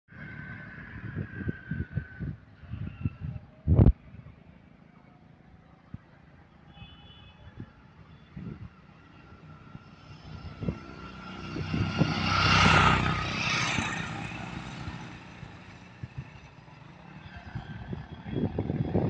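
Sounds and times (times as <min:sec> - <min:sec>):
low rumbles on microphone: 0:00.8 - 0:04.4
vehicle passing by: 0:08.4 - 0:19.0.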